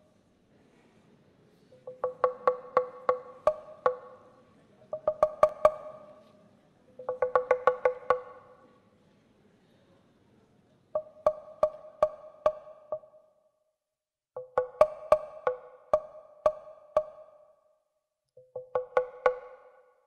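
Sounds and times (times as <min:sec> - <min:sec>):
pitched wooden knocks: 0:01.8 - 0:06.4, 0:07.0 - 0:08.7, 0:11.0 - 0:13.2, 0:14.4 - 0:17.5, 0:18.4 - 0:19.9.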